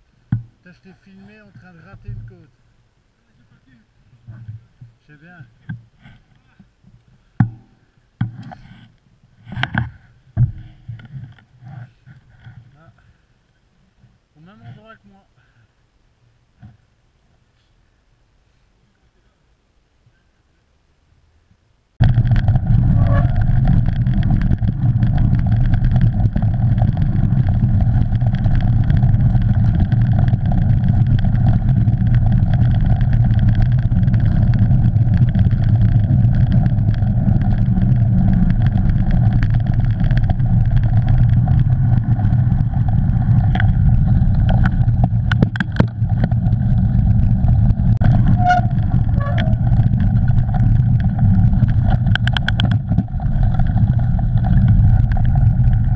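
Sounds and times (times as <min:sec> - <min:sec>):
bike knocking over bumps: 0:07.4 - 0:08.4, 0:22.0 - 0:55.9
wind rumble: 0:21.9 - 0:55.9.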